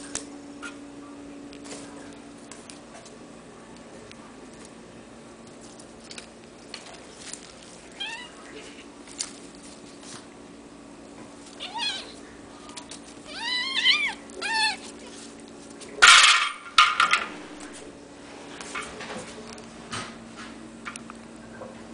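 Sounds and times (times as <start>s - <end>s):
kittens mewing: 11.5s - 12.3s, 13.1s - 15.2s.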